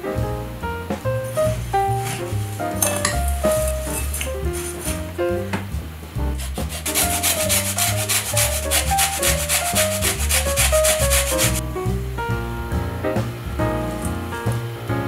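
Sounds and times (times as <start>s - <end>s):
background music: 0.0s - 15.0s
metal grater scraping: 6.5s - 11.6s.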